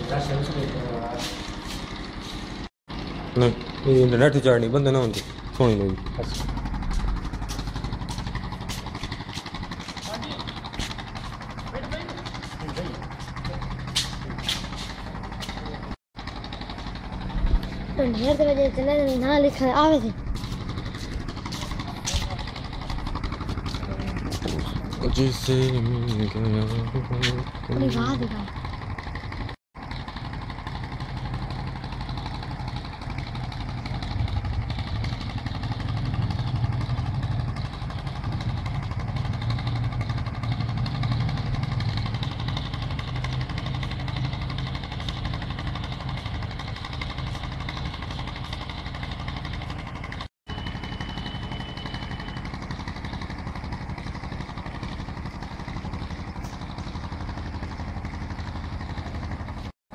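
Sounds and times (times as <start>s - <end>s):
outdoor background noise: 0.0s - 59.7s
low engine hum: 0.0s - 59.8s.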